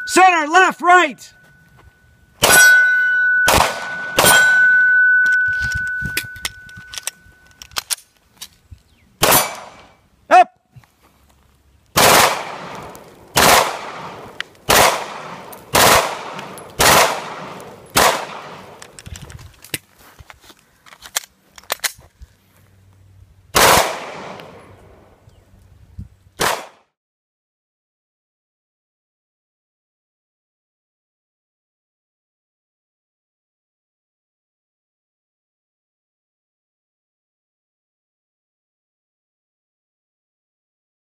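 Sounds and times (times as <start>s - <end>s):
pistol gunshots: 2.4s - 4.8s, 9.2s - 9.9s, 12.0s - 18.9s, 23.5s - 24.7s, 26.4s - 26.9s.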